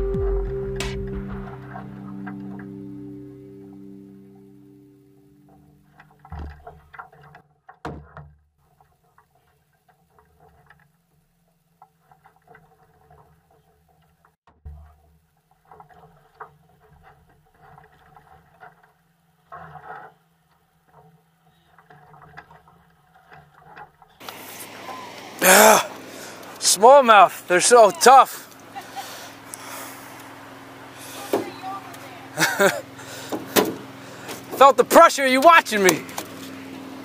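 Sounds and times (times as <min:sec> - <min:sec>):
thumps against boat hull: 0:06.2 - 0:07.0, 0:07.7 - 0:08.5, 0:33.3 - 0:34.6.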